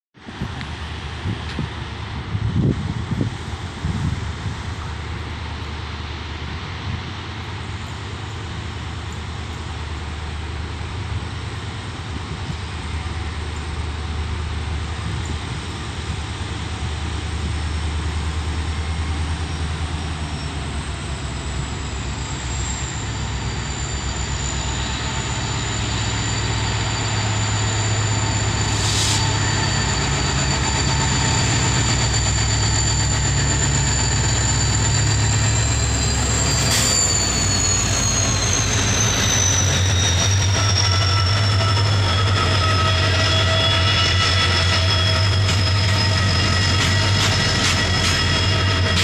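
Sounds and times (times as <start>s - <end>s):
diesel locomotive engines rumbling: 0.2s - 49.0s
thin high whine: 21.4s - 49.0s.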